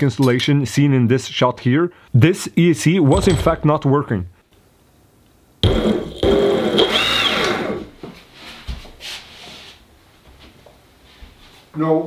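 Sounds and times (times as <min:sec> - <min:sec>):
electric motor whirring and whining: 0:05.6 - 0:07.9.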